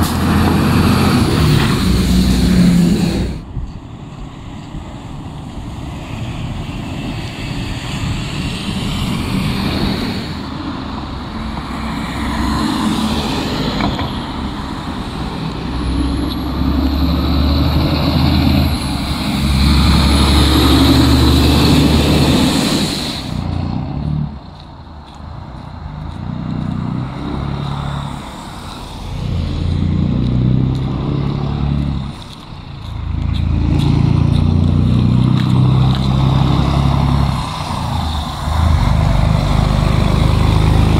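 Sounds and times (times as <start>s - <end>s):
diesel trucks driving past: 0.0s - 40.9s
tyres hissing on wet road: 0.0s - 40.9s.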